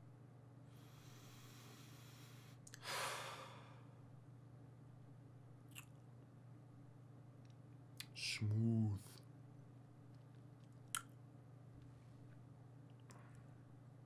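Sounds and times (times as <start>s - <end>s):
man breathing in: 0.7s - 4.0s.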